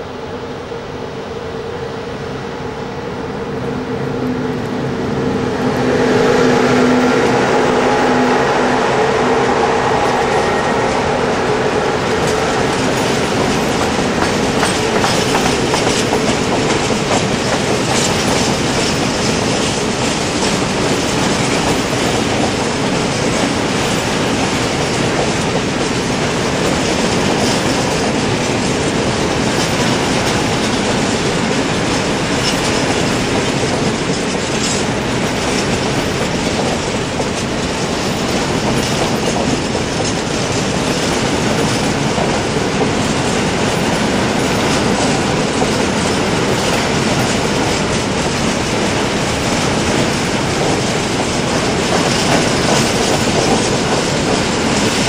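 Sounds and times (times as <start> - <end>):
electric locomotive humming: 0.0 - 55.0
train wheels clattering over rail joints: 12.0 - 55.0.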